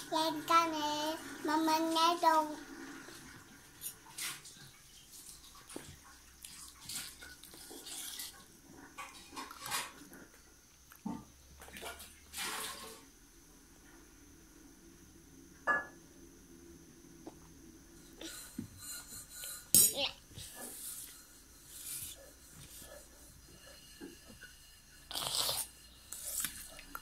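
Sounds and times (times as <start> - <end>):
child chewing and smacking: 3.8 - 11.9, 25.1 - 27.0
spoon scraping metal plate: 18.2 - 27.0.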